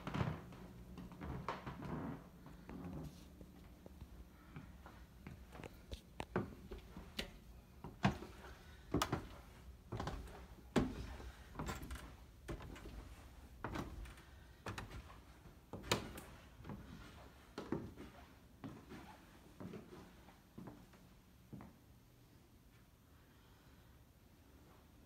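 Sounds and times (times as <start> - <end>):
footsteps on wooden stairs: 4.5 - 17.9.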